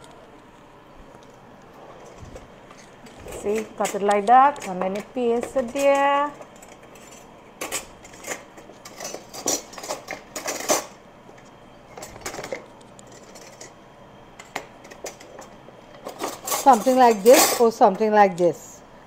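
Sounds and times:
cutlery and dishes clinking: 0:16.0 - 0:17.8.

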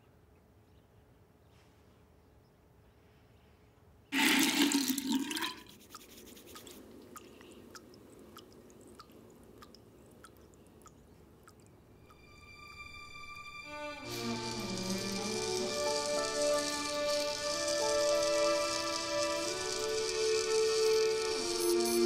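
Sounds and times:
faint steady hiss: 0:03.0 - 0:22.0
water splashing into basin: 0:04.2 - 0:12.2
water drips plinking: 0:04.5 - 0:13.1.

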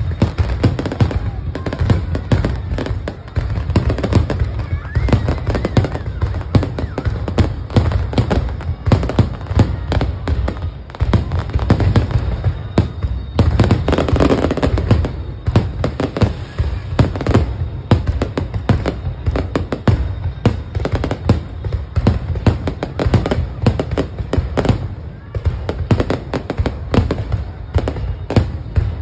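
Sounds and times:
firework bangs and crackling: 0:00.0 - 0:29.0.

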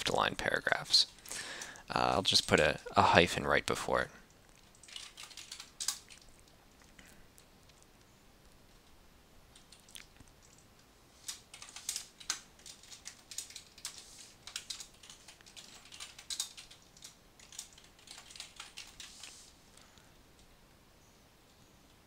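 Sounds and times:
typing on computer keyboard: 0:04.7 - 0:06.3, 0:09.5 - 0:19.4.

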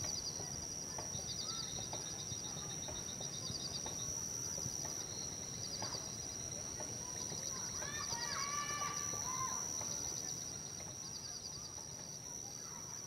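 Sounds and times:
insect trills: 0:00.0 - 0:13.0
insects droning: 0:00.0 - 0:13.0.

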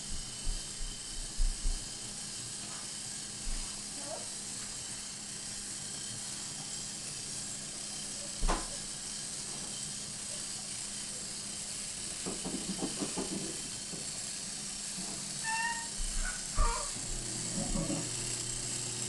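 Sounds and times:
toy train clacking over wooden track: 0:07.8 - 0:16.9, 0:17.5 - 0:18.4.

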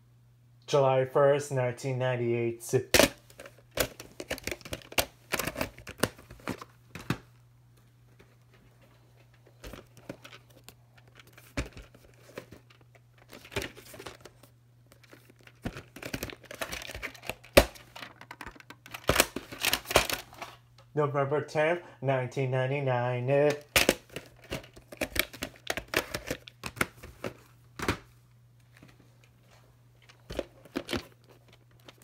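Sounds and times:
plastic cases clicking and clacking: 0:03.0 - 0:07.3, 0:09.3 - 0:20.6, 0:23.5 - 0:28.0, 0:30.0 - 0:32.0.

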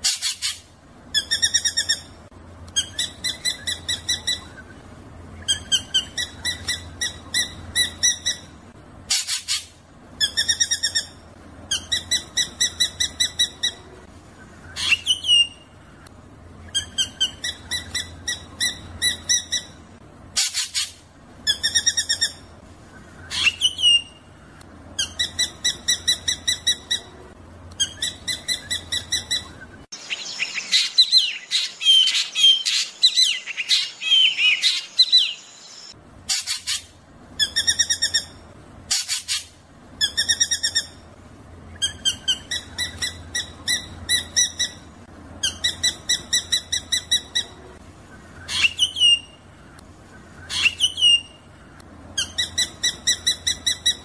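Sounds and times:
bird chattering: 0:00.0 - 0:04.8, 0:05.4 - 0:08.5, 0:27.8 - 0:41.0, 0:41.7 - 0:51.4, 0:52.2 - 0:54.0.

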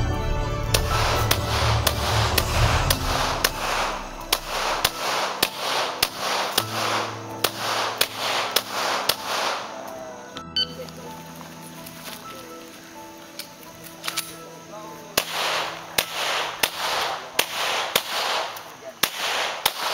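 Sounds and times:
background music with steady beat: 0:00.0 - 0:19.9
pistol shots: 0:00.7 - 0:10.0, 0:15.2 - 0:19.9.

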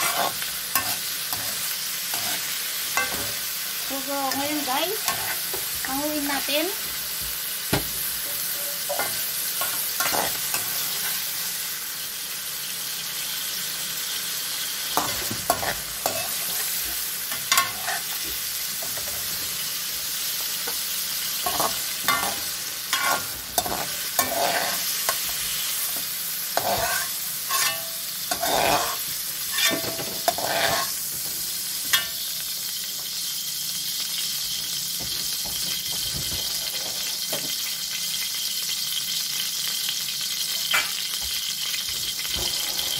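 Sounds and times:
metal spatula scraping wok: 0:00.0 - 0:06.6, 0:08.2 - 0:11.3, 0:15.0 - 0:19.5, 0:21.4 - 0:31.0, 0:42.2 - 0:42.9
vegetables sizzling in oil: 0:00.0 - 0:42.9.

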